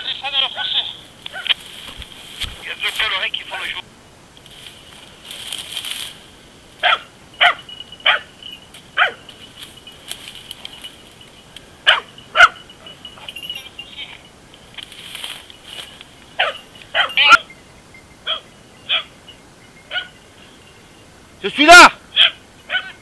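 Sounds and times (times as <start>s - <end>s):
dogs barking: 0.5s - 1.6s, 6.8s - 9.4s, 11.8s - 13.5s, 16.3s - 17.5s, 18.2s - 19.2s, 19.9s - 20.3s, 22.1s - 23.0s.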